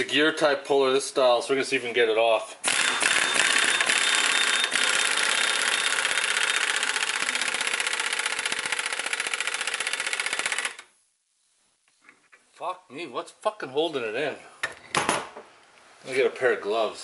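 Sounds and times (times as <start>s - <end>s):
pneumatic impact wrench hammering: 2.6s - 10.8s.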